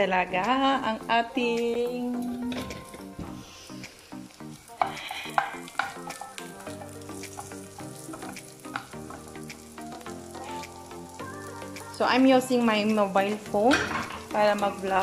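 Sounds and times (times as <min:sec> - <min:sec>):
pancetta sizzling in frying pan: 0:01.4 - 0:15.0
wooden spatula stirring: 0:05.4 - 0:10.1.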